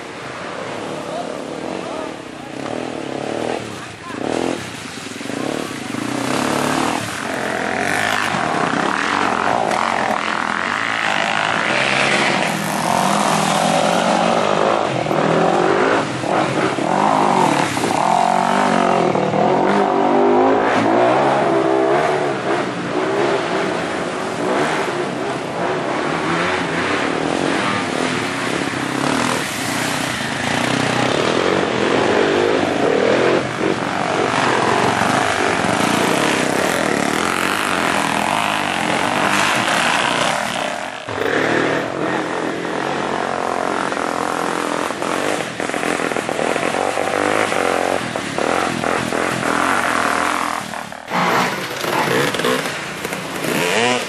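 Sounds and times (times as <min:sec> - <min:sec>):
dirt bike engines revving: 0:00.0 - 0:54.0
water splashing: 0:00.0 - 0:54.0.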